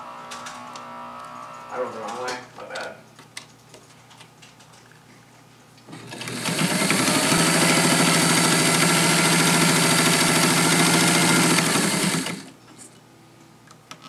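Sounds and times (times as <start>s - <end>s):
sewing machine running: 5.9s - 12.6s.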